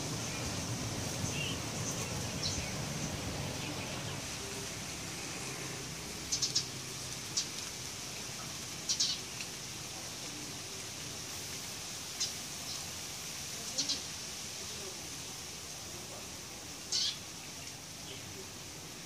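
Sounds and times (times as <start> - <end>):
steady high hiss: 0.0 - 19.0
bird chirping: 1.2 - 4.2.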